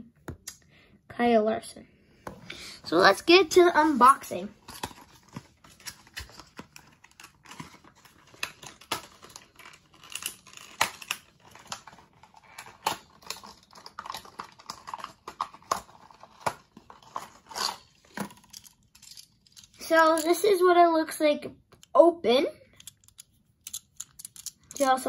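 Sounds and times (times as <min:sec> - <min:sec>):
packaging being opened by hand: 0:04.6 - 0:18.6.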